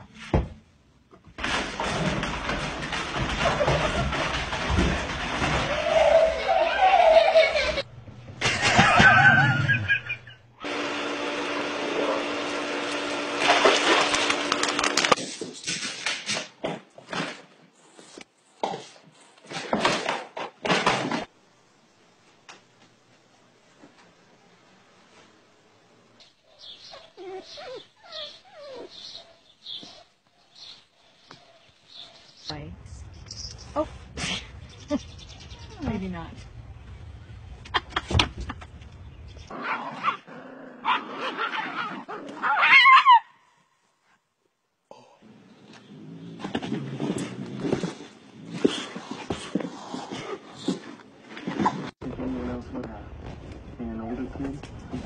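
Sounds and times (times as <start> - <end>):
dog yipping and barking: 26.9 - 30.1, 40.8 - 43.4
dog high yelp: 40.8 - 43.4.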